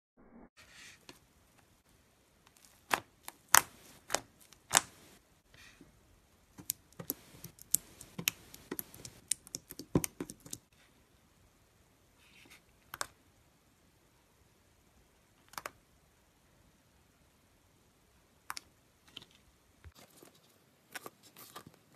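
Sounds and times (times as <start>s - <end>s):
slime clicking and popping: 2.8s - 4.9s, 6.6s - 10.7s.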